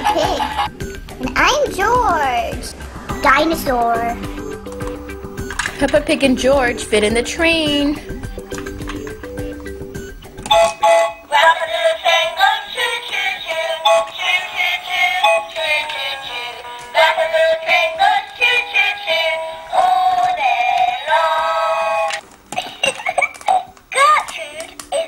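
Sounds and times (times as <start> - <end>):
tinny electronic toy tune with singing: 10.5 - 22.2.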